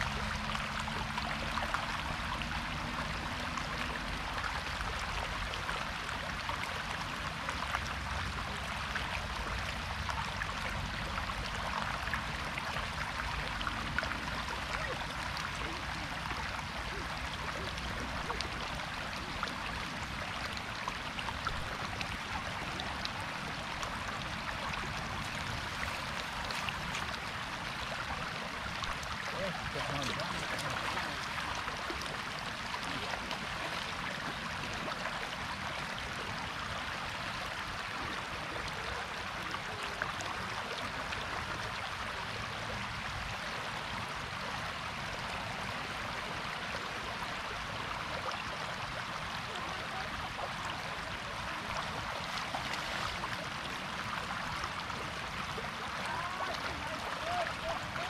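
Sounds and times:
floodwater rushing and splashing: 0:00.0 - 0:58.0.

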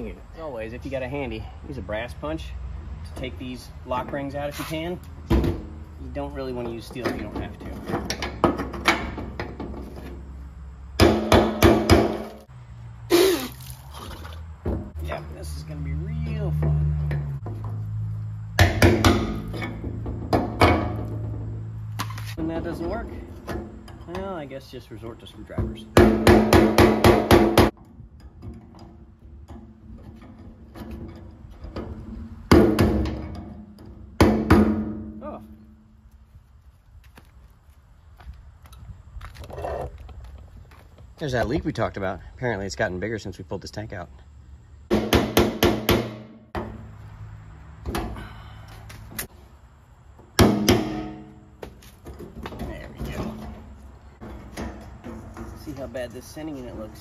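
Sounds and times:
hammer striking metal punch: 0:11.0 - 0:12.4, 0:18.6 - 0:21.4, 0:26.0 - 0:27.8, 0:34.2 - 0:35.2, 0:44.9 - 0:46.8, 0:50.4 - 0:51.5.

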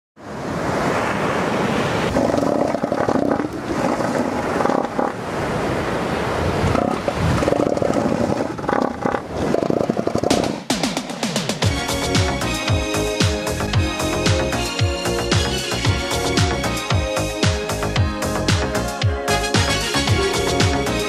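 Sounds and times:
surf washing: 0:00.2 - 0:11.6
seals calling: 0:02.1 - 0:05.8, 0:06.4 - 0:09.9.

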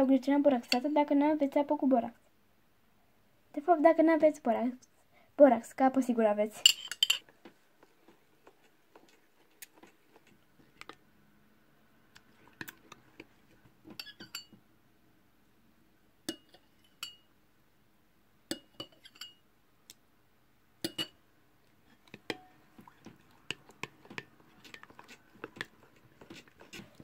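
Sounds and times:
spoon clinking against glass: 0:14.0 - 0:14.5, 0:20.8 - 0:21.2.

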